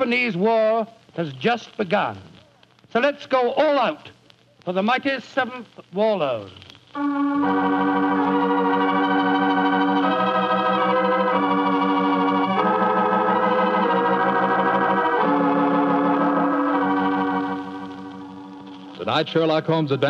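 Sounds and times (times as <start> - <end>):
organ chords with tremolo: 7.0 - 20.0.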